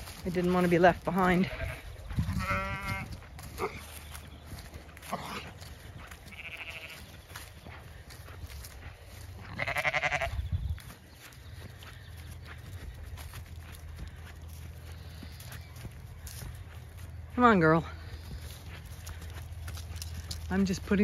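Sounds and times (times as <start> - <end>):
sheep bleating: 1.2 - 3.8, 6.2 - 7.1, 9.4 - 10.4.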